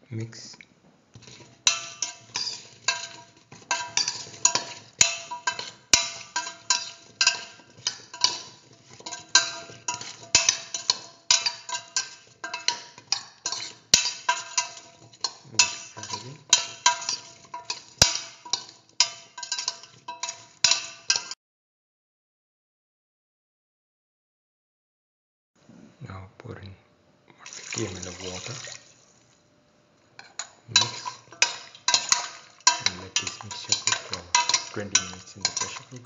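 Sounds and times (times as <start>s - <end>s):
spoon scraping metal pot: 1.1s - 21.3s, 30.2s - 36.0s.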